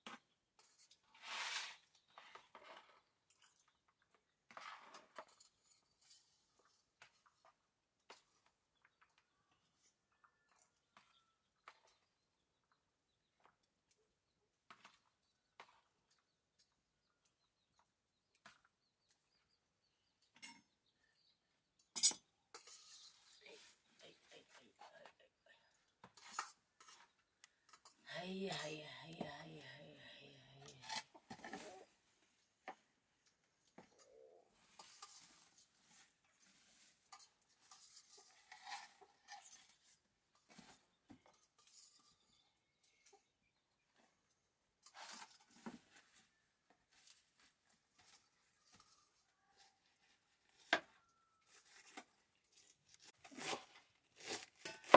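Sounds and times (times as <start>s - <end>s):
woven sack rustling and crinkling: 45.0s - 54.9s.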